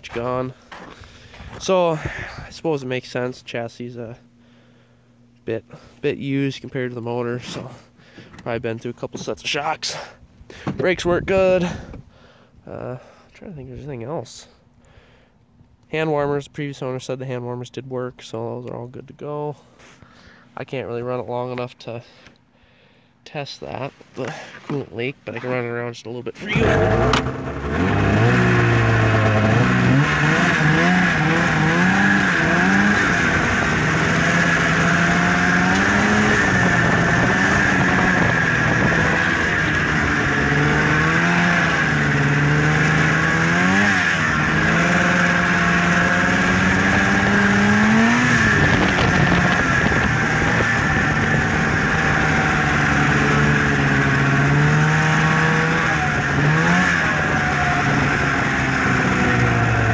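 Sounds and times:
snowmobile engine revving: 0:26.4 - 0:59.9.

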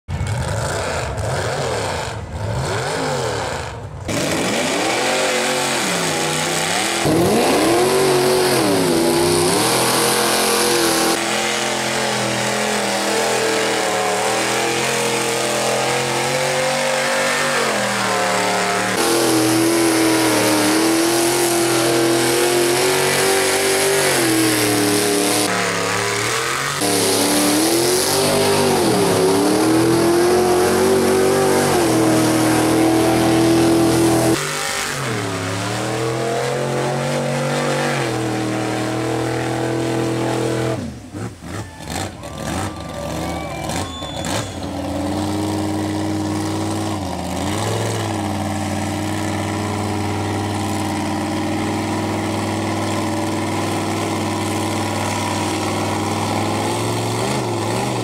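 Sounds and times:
truck engine revving hard: 0:00.1 - 0:58.0.

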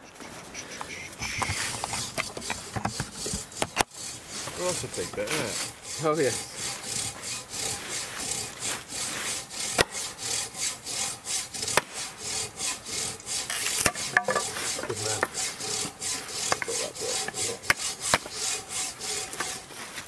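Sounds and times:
hand saw cutting wood: 0:00.3 - 0:20.0
sharp knocks: 0:09.6 - 0:10.1, 0:13.5 - 0:18.4.

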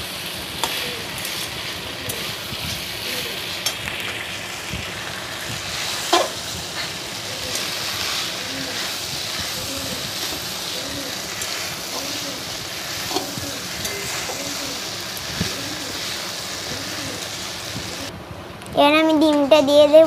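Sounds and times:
pasta sizzling in a wok: 0:00.0 - 0:18.2
spatula stirring and scraping: 0:05.3 - 0:18.1.

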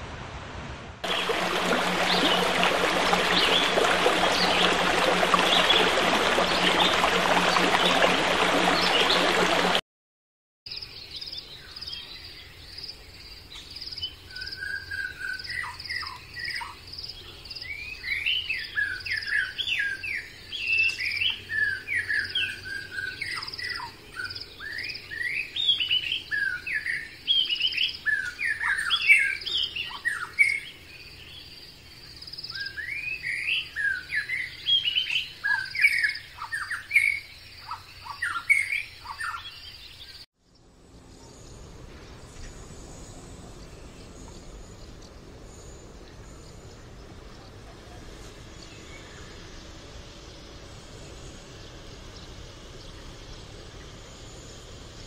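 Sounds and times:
birds chirping and whistling: 0:32.5 - 0:40.2.

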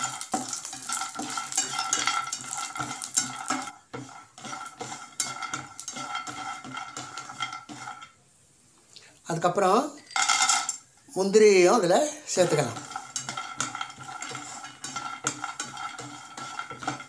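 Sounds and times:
spatula scraping and tapping pan: 0:00.0 - 0:08.2, 0:12.1 - 0:17.0.

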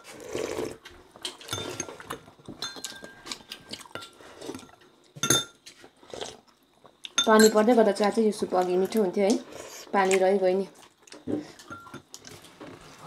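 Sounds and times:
person sipping soup: 0:00.0 - 0:02.2, 0:05.8 - 0:06.9
spoons clinking on plates: 0:01.4 - 0:03.3, 0:05.2 - 0:05.6, 0:07.2 - 0:07.6.

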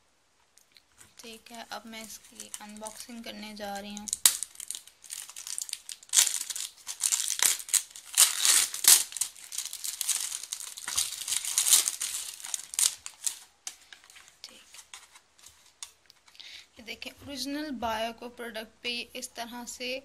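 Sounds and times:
cellophane crinkling and tearing: 0:00.8 - 0:16.4.

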